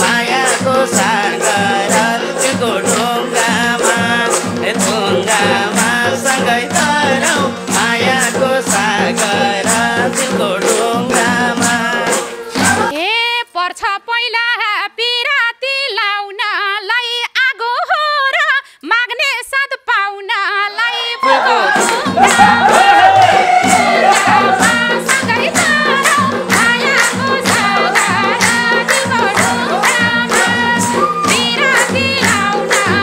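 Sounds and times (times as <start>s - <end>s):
live folk band: 0.0s - 12.9s
steady drumbeat: 0.0s - 12.9s, 21.7s - 33.0s
person singing: 0.0s - 14.4s, 20.3s - 33.0s.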